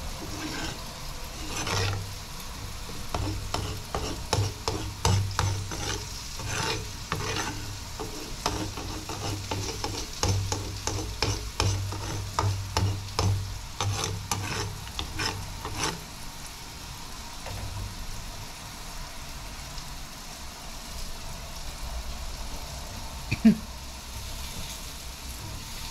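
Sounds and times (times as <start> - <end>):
metal spoon scraping a pan: 0.0 - 16.2
curry sizzling: 0.0 - 25.9.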